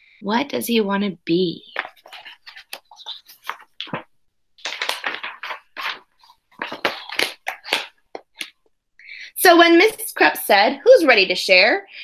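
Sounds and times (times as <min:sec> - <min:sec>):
book pages rustling: 0:01.7 - 0:08.6.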